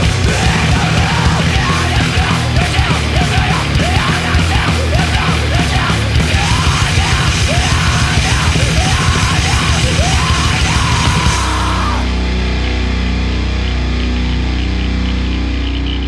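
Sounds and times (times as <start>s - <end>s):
rapid pounding drums: 0.0s - 12.4s
yelled vocals: 0.0s - 12.9s
distorted guitars: 0.0s - 16.0s.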